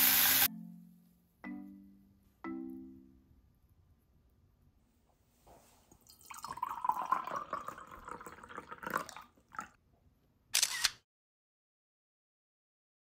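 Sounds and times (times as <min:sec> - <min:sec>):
liquid pouring into glass mug: 0:06.0 - 0:09.8
camera shutter: 0:10.6 - 0:11.0.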